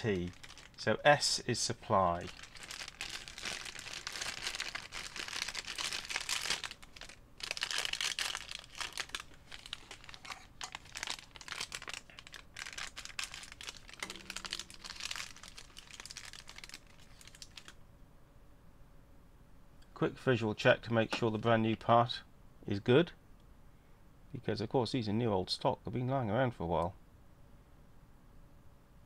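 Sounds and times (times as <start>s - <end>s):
plastic bag crinkling: 0.0s - 0.9s, 1.9s - 17.8s.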